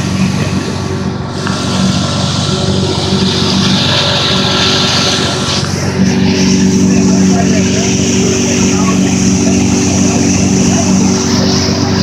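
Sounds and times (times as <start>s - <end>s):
motorboat engine running: 0.0s - 12.0s
water rushing from boat wake: 0.0s - 12.0s.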